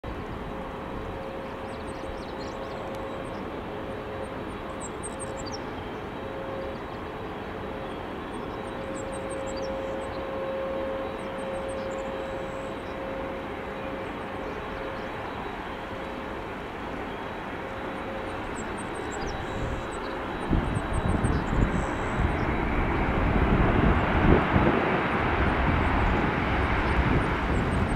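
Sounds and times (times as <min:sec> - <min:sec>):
jet engine rumble with whine: 0:00.0 - 0:27.9.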